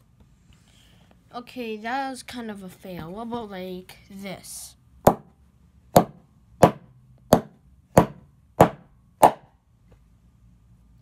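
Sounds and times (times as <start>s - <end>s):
sharp knocks on plastic brick: 5.1s - 5.3s, 6.0s - 9.5s.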